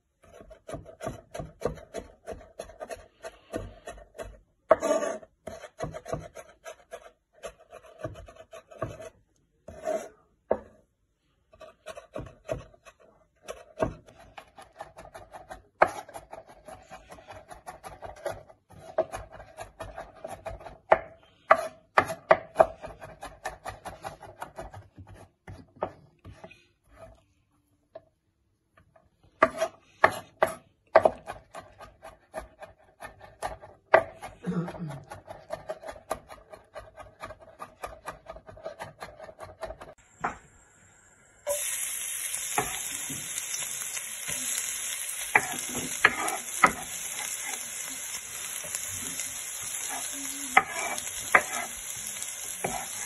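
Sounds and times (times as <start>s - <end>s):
knife chopping on wooden board: 0.2s - 9.1s, 11.8s - 26.4s, 29.4s - 34.3s, 45.3s - 47.6s, 50.6s - 51.8s, 52.6s - 53.0s
knife scraping board: 0.2s - 10.8s, 29.4s - 30.6s, 44.6s - 47.9s, 48.5s - 53.0s.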